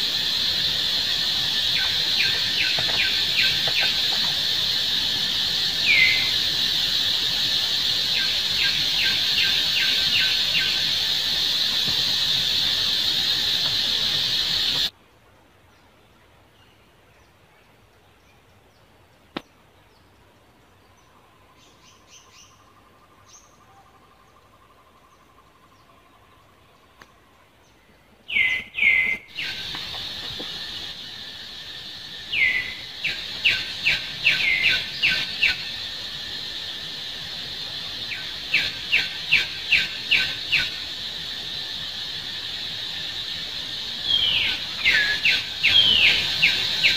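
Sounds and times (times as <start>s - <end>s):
faint chirps: 0.0s - 14.9s, 28.3s - 46.9s
high-pitched insect drone: 0.0s - 14.9s, 29.3s - 46.9s.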